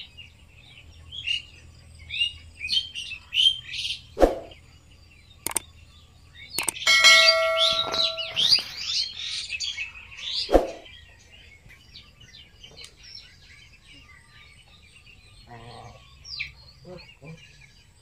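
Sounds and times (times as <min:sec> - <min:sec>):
faint bird chirping: 0:00.0 - 0:18.0
bell-like ding: 0:06.8 - 0:08.8
quick rising chirps: 0:10.5 - 0:10.9.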